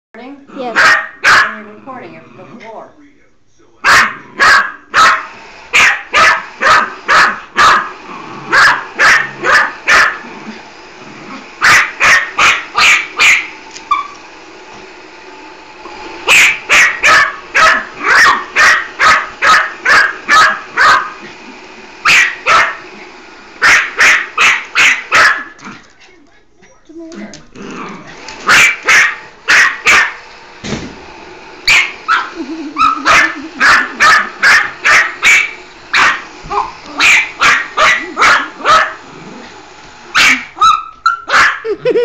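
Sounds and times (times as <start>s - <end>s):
puppy barking: 0.6s - 1.6s, 3.8s - 7.9s, 8.5s - 10.3s, 11.6s - 14.2s, 16.3s - 21.2s, 22.0s - 22.8s, 23.6s - 25.6s, 28.4s - 30.2s, 31.6s - 39.0s, 40.1s - 41.8s.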